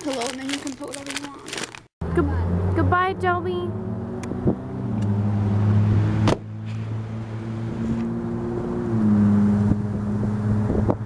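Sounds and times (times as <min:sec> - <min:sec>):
car door slamming: 0:06.2 - 0:06.5.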